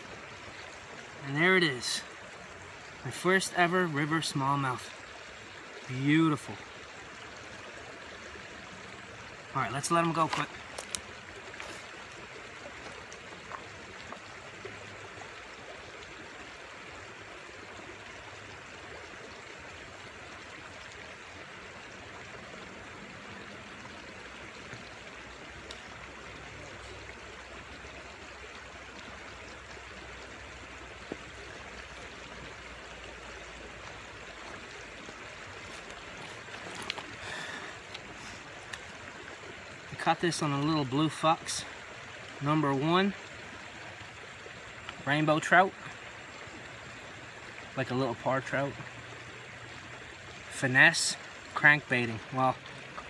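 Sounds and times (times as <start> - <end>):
river water rushing over rocks: 0.0 - 53.0
footsteps on stones: 34.4 - 38.9.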